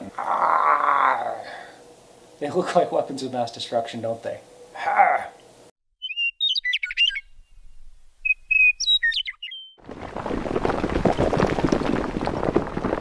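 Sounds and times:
birds chirping: 0:03.2 - 0:09.8
concrete cracking and crumbling: 0:09.8 - 0:13.0.

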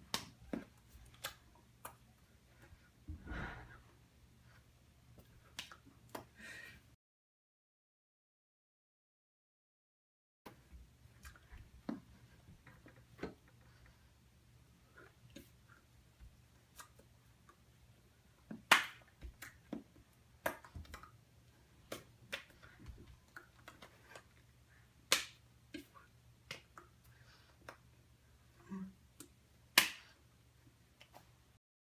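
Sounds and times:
hands slapping and clapping: 0:00.0 - 0:02.0, 0:18.5 - 0:21.1, 0:21.9 - 0:22.7, 0:25.1 - 0:26.8, 0:29.8 - 0:30.2.

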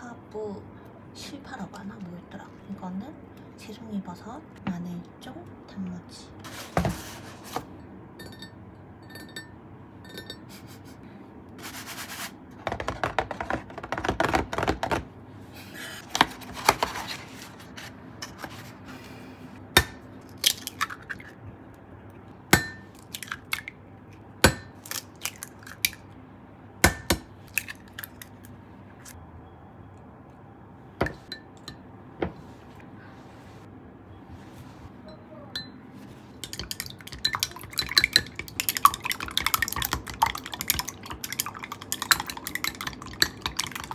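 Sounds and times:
rustling and scraping: 0:06.4 - 0:07.8, 0:11.6 - 0:12.4, 0:15.5 - 0:19.2, 0:32.3 - 0:35.0
dishes clinking: 0:08.2 - 0:10.5.

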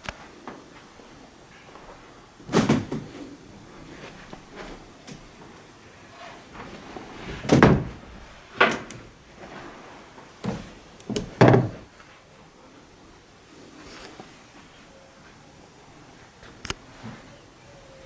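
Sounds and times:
wooden wardrobe doors knocking: 0:07.5 - 0:08.0, 0:10.4 - 0:11.8.

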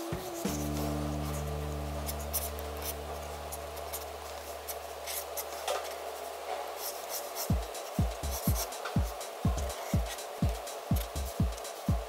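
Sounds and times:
low music chord: 0:00.0 - 0:04.6
pen scratching on paper: 0:02.0 - 0:03.0, 0:06.8 - 0:09.0
electronic drum beat: 0:07.4 - 0:12.0.

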